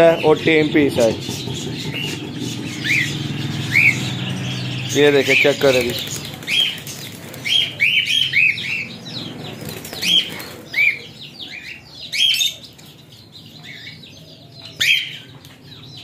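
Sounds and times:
birds chirping: 0.0s - 16.0s
wings fluttering: 5.2s - 7.9s, 9.2s - 11.0s.

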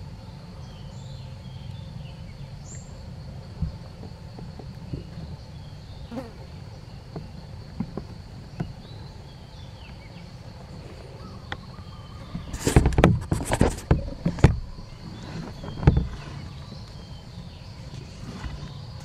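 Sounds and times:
faint chirps: 0.0s - 19.0s
insect buzzing: 0.0s - 19.0s
close rustling and crackling: 9.9s - 19.0s.

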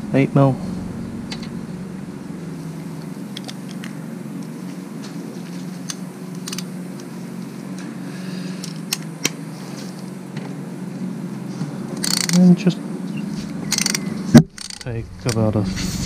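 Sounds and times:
steady low hum: 0.0s - 8.0s, 14.8s - 16.0s.

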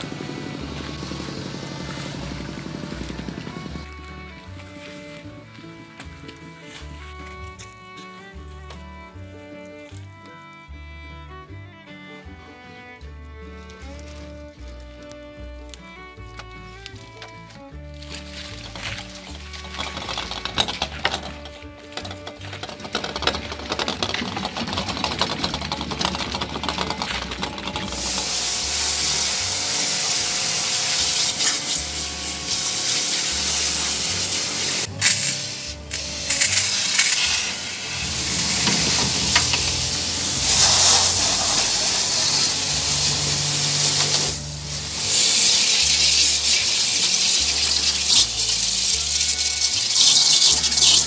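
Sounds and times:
pressure washer spraying water: 24.0s - 51.0s.

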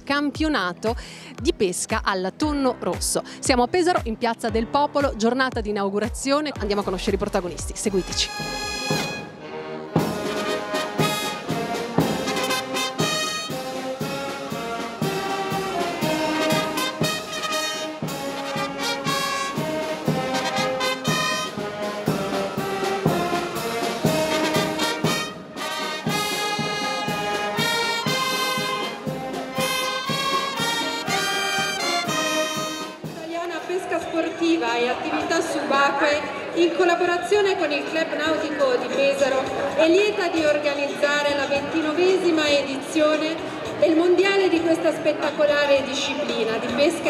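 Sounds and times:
wind band playing lively tune: 7.6s - 35.7s.

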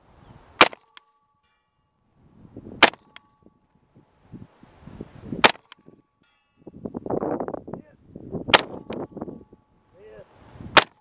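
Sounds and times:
suppressed pistol shots: 0.6s - 1.0s, 2.8s - 3.2s, 5.4s - 5.9s, 8.5s - 9.0s
steel target ping ringing: 0.6s - 3.8s, 5.5s - 7.1s, 8.5s - 9.8s.

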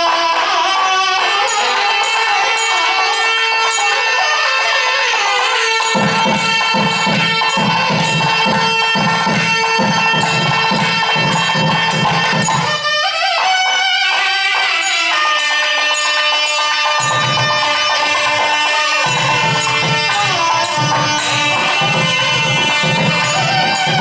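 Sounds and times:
drum beating rapidly: 5.8s - 13.1s, 15.9s - 24.0s.

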